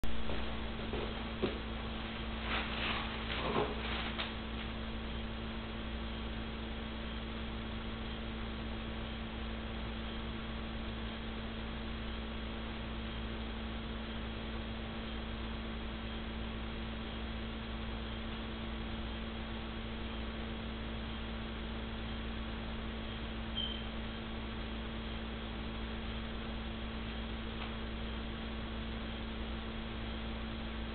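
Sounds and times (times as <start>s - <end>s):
knocks and rustles: 0.0s - 1.7s, 2.4s - 4.7s
electrical hum: 0.0s - 30.9s.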